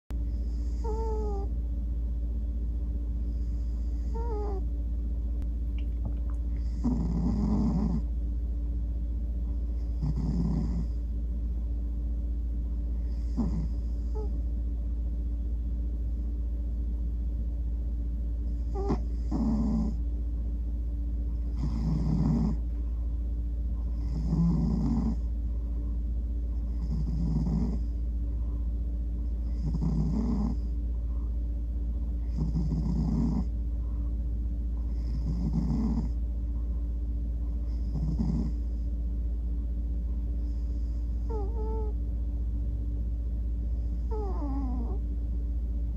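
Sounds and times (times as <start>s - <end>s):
cat snoring: 0.3s - 1.5s, 3.2s - 4.7s, 6.5s - 8.1s, 9.8s - 11.1s, 13.0s - 14.4s, 18.5s - 20.0s, 21.5s - 22.7s, 23.8s - 25.4s, 26.6s - 27.9s, 29.4s - 30.8s, 32.2s - 33.5s, 34.8s - 36.2s, 37.5s - 38.8s, 40.4s - 42.0s, 43.8s - 45.0s.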